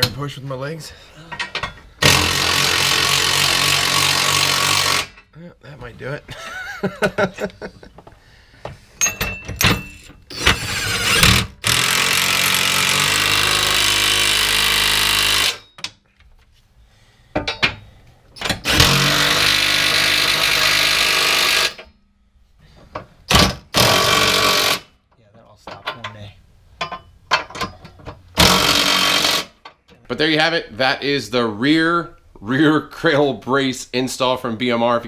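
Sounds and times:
impact wrench running: 2.0s - 5.3s, 9.8s - 15.7s, 18.5s - 21.9s, 23.3s - 24.9s, 28.4s - 29.6s.

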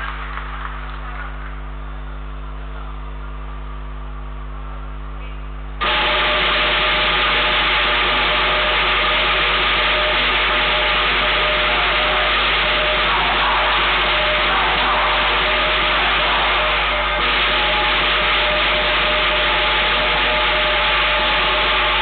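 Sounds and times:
drum and clashing cymbals: 5.8s - 22.0s.

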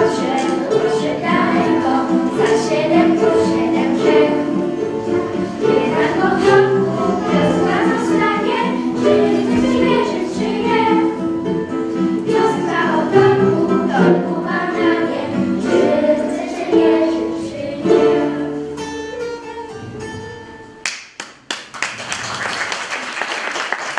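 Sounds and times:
girls singing a ballad: 0.0s - 18.8s
ukulele ensemble strumming: 0.0s - 22.1s
audience applause: 20.8s - 23.9s.

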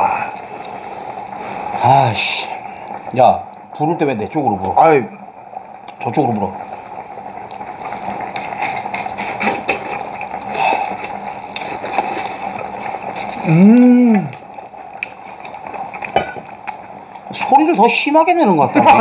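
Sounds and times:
boiling pot hiss: 0.0s - 19.0s
man chewing and slurping: 7.9s - 16.2s
man's drawn-out vocal relish: 13.4s - 14.4s.

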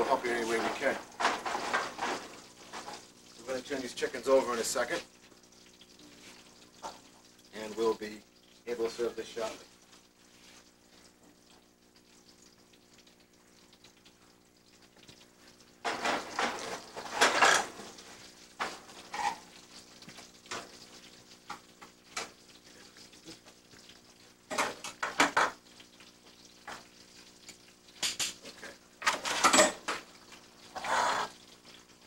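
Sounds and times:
metal pans clanking and scraping: 0.0s - 3.0s, 15.8s - 18.0s, 24.5s - 25.6s, 28.0s - 30.1s.

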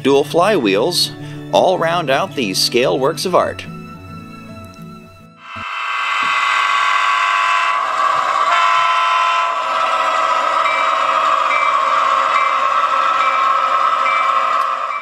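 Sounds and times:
short high tones: 5.4s - 9.6s
diesel locomotive sound from speaker: 5.6s - 15.0s.

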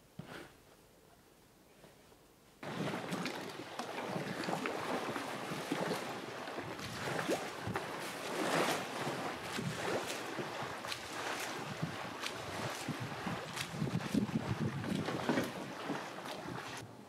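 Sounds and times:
wind: 0.0s - 17.0s
water lapping: 2.6s - 16.8s
wind noise on microphone: 6.6s - 16.8s.

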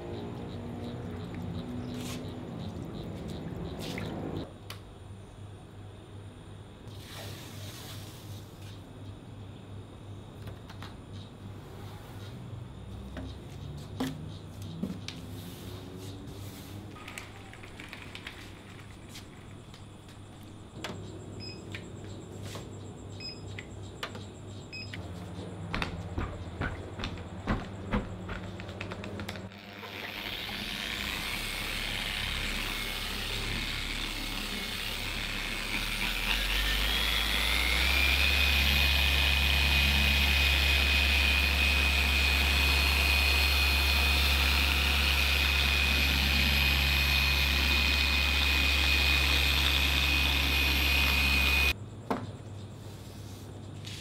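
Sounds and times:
car polisher motor whining: 29.6s - 51.8s.

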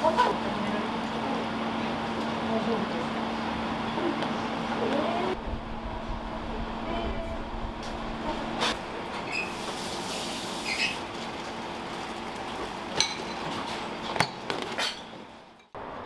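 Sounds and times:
kitchen background rush: 0.0s - 16.0s
utensils and dishes clinking: 12.9s - 15.8s.

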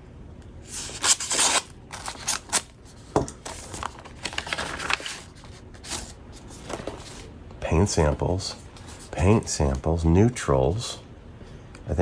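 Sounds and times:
knife slitting paper envelope: 3.4s - 6.1s
paper scrapes and rustles: 3.4s - 7.3s.

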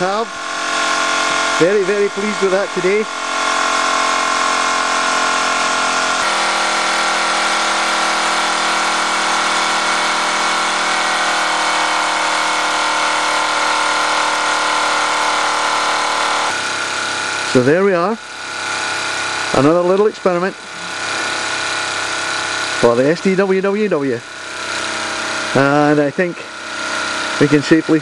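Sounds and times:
toy steam engine whirring with hiss: 20.7s - 28.0s.

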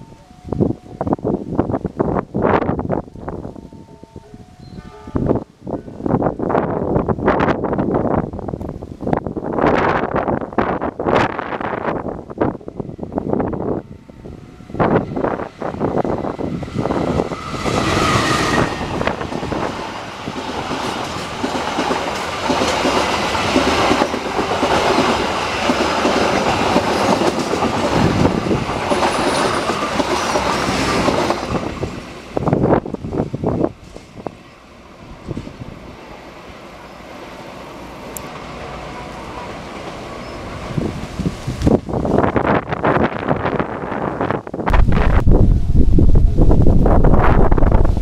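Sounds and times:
steady train rumble: 0.0s - 48.0s
diesel locomotive engine: 9.5s - 48.0s
train wheels clickety-clack: 16.8s - 32.2s, 33.8s - 34.3s.

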